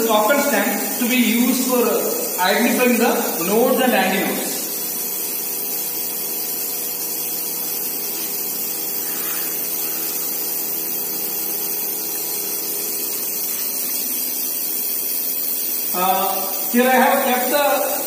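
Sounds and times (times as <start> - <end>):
tuning fork buzzing: 4.6 - 17.2.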